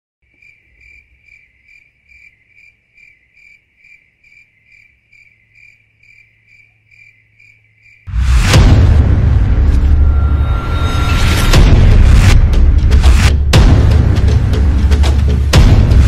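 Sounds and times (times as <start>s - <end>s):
cricket chirping: 0.2s - 8.1s
loud boom: 8.1s - 16.0s.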